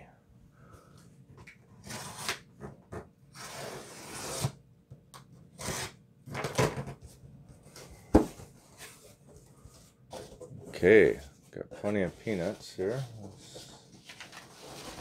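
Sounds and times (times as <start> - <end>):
packing tape ripping off cardboard: 1.8 - 2.5, 3.3 - 4.6, 5.5 - 6.9
cardboard flaps handled: 8.0 - 8.5.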